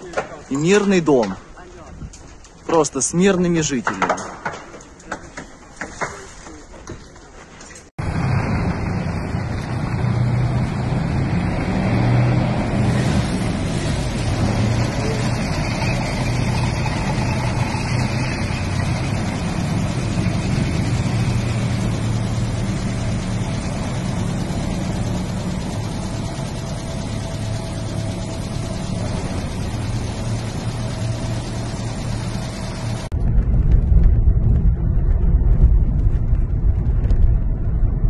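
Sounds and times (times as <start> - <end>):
track and road noise: 0.0 - 38.0
tracked vehicle engine drone: 8.0 - 38.0.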